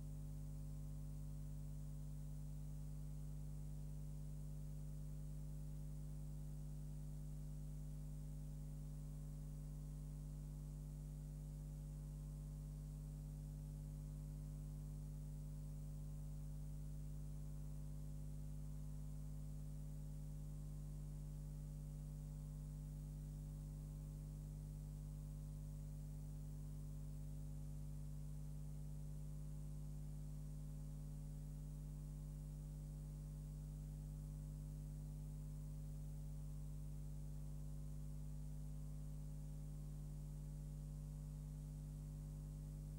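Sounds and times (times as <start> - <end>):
low electrical hum with hiss: 0.0 - 42.9.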